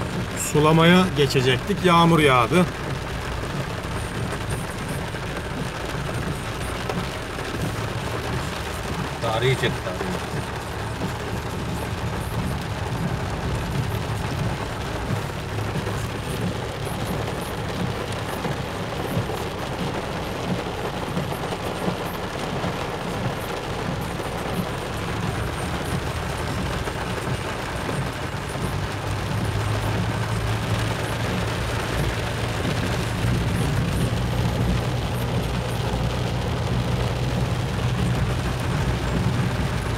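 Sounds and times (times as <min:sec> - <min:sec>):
car engine and tyre hum: 0:00.0 - 0:39.9
rain hissing on wet road: 0:00.0 - 0:39.9.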